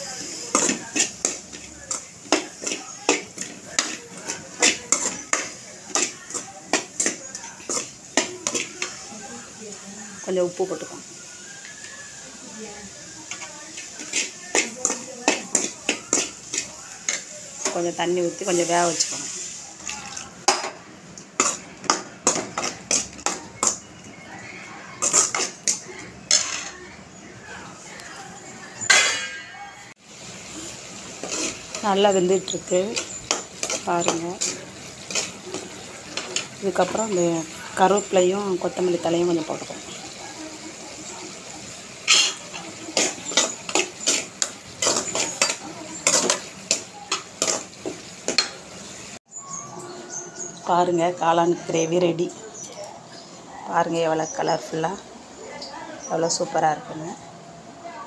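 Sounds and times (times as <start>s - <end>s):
metal spoon scraping a metal pan: 0.1s - 9.1s, 13.3s - 19.5s, 21.4s - 23.9s, 25.0s - 26.8s, 31.0s - 40.1s, 41.9s - 48.6s.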